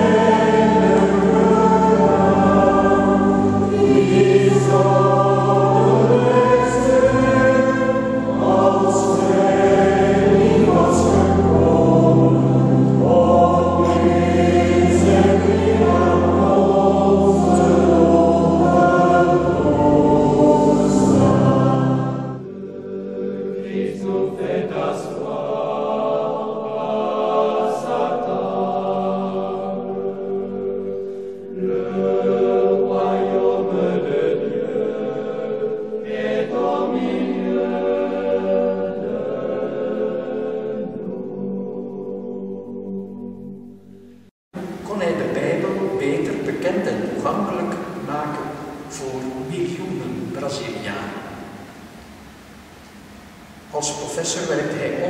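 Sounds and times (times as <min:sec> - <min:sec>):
women's choir singing: 0:00.0 - 0:43.6.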